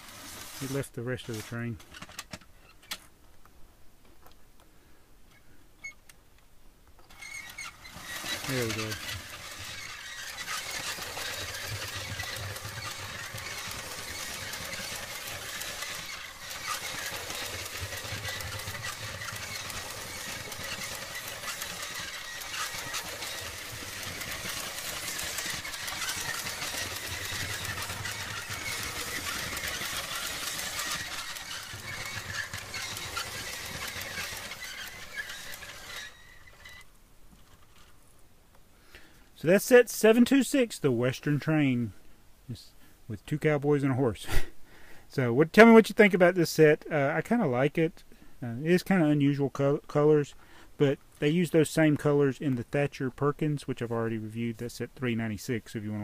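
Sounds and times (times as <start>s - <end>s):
toy train motor whirring: 0.0s - 3.0s, 7.0s - 37.9s.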